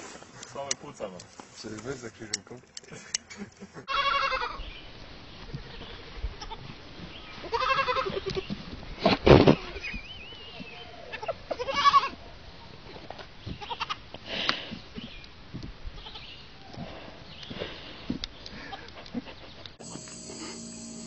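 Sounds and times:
young goats bleating: 3.9 - 4.6, 7.4 - 8.5, 10.9 - 12.2, 13.6 - 14.0.

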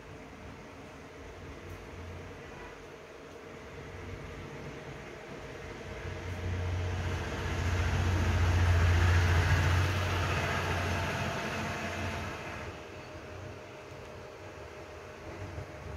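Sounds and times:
passing vehicle hum and rush: 5.8 - 12.7.

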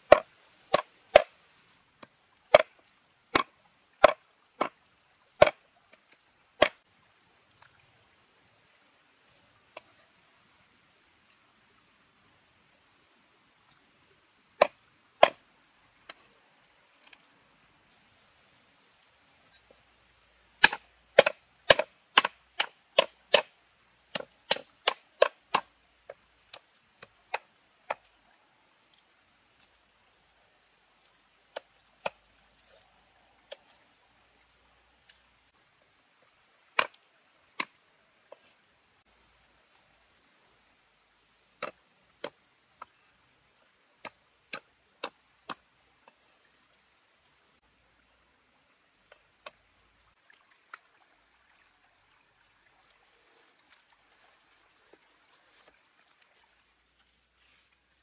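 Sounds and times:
cleaver chopping on wooden block: 0.1 - 1.3, 20.6 - 23.5.

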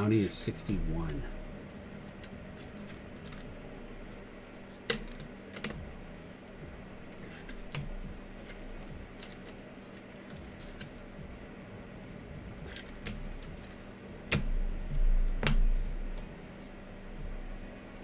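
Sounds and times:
faint steady hum: 0.0 - 18.0
cards clicking and snapping: 2.0 - 3.5, 4.8 - 5.9, 7.1 - 11.1, 12.6 - 14.6.

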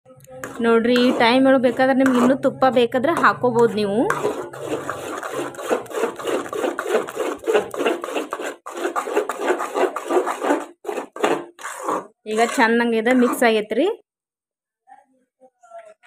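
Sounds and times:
metal spoon scraping a metal pot: 0.2 - 13.8.

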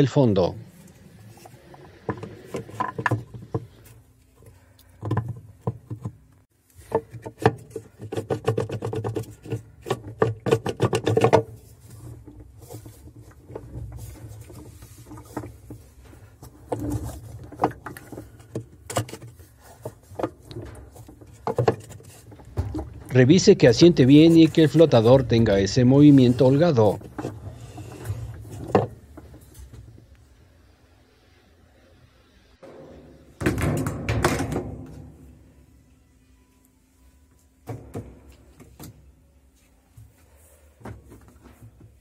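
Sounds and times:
plastic parts clicking and knocking: 1.4 - 25.6.

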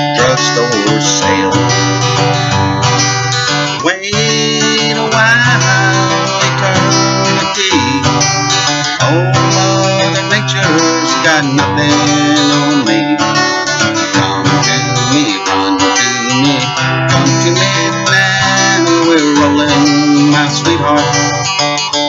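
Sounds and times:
acoustic guitar strumming: 0.0 - 22.0.

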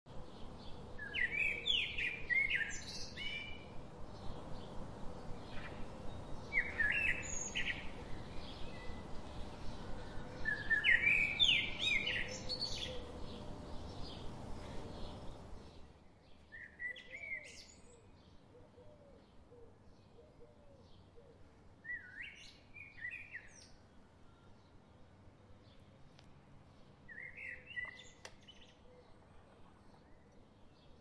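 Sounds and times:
bird chirping: 0.1 - 26.3, 27.1 - 31.0.

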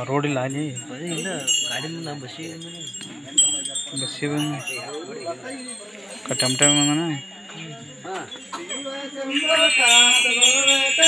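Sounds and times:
metal hand percussion jingling: 0.0 - 11.0
men chanting: 6.3 - 11.0.

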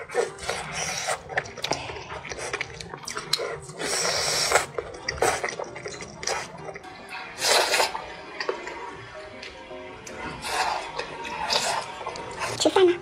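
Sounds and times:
wet chewing and smacks: 0.0 - 6.9.

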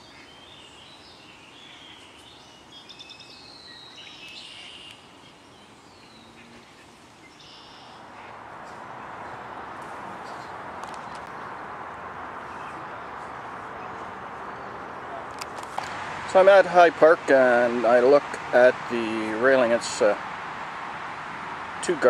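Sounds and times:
bird trill: 0.0 - 11.6
birds singing and chirping: 0.0 - 16.3
steady rushing noise: 6.4 - 22.0.

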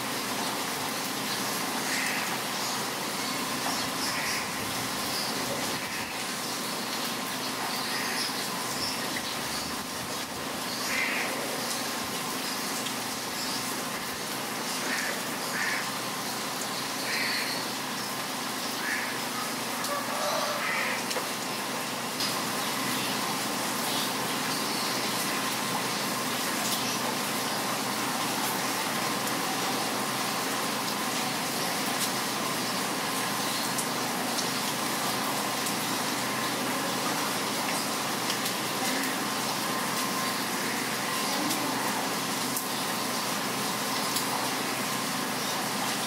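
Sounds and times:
heavy rain: 0.0 - 46.0
bird calls: 16.8 - 17.8.

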